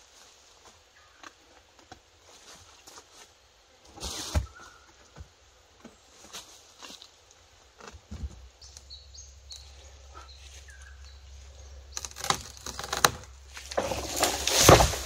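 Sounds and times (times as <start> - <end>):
faint bird chirps: 8.6 - 12.2
dry leaves rustling and crackling: 10.4 - 15.0.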